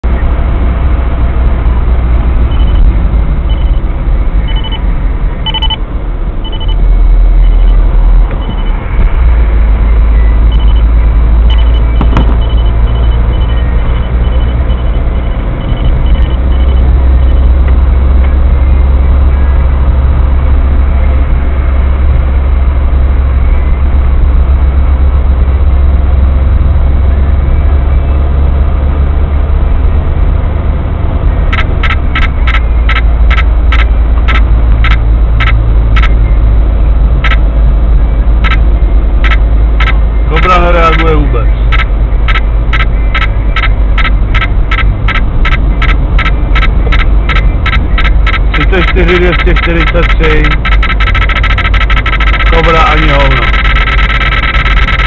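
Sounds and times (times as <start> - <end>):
car road and engine rumble: 0.0 - 55.0
radar detector alert beeps: 2.5 - 2.9, 3.5 - 3.8, 4.5 - 4.8, 5.4 - 5.8, 6.4 - 6.8, 7.4 - 8.8, 10.2 - 17.5, 31.5 - 36.2, 41.7 - 55.0.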